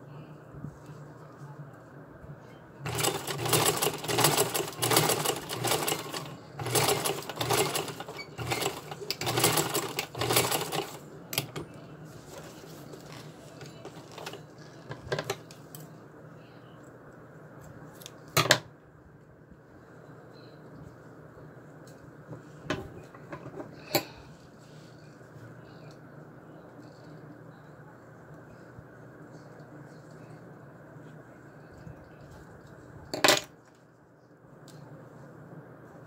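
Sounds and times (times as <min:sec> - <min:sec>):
sewing machine stitching: 0:02.8 - 0:11.6, 0:13.8 - 0:14.4.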